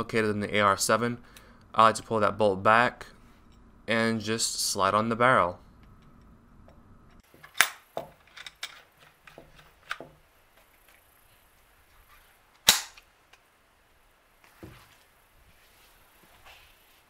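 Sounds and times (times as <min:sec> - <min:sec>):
rifle parts clicking and clacking: 0:07.2 - 0:10.2.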